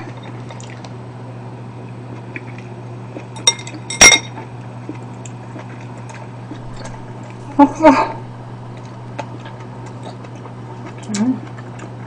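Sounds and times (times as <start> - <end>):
steady low hum: 0.0 - 12.0
chopsticks clinking on ceramic bowl: 3.4 - 4.4.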